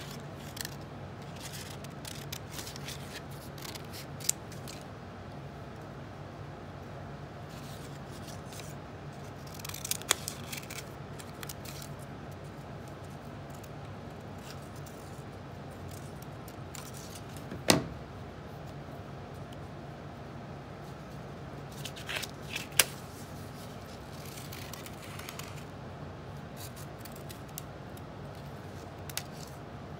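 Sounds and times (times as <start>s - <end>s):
scissors snipping paper: 0.0s - 4.8s, 7.7s - 12.1s, 26.6s - 29.6s
faint steady low hum: 0.0s - 29.9s.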